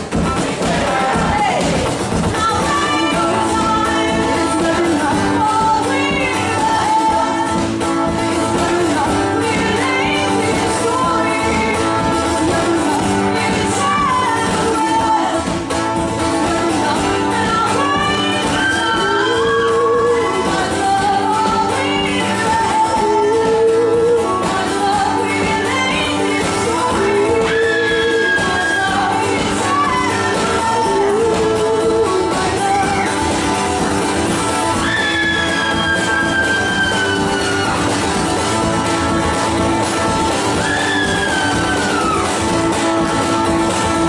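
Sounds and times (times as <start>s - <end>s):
strummed acoustic guitars: 0.0s - 44.0s
women singing together: 0.4s - 1.8s, 2.4s - 15.5s, 16.3s - 33.4s.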